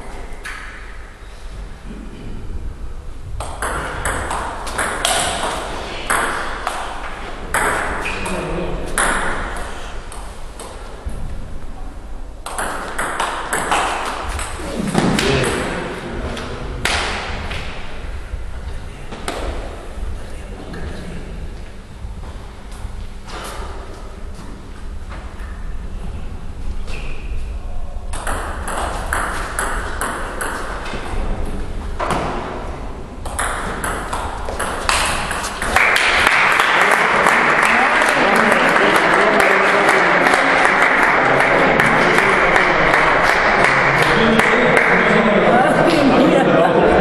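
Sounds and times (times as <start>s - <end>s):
table tennis ball hits: 3.4s - 10.8s, 12.4s - 16.0s, 28.1s - 31.1s, 33.2s - 38.2s.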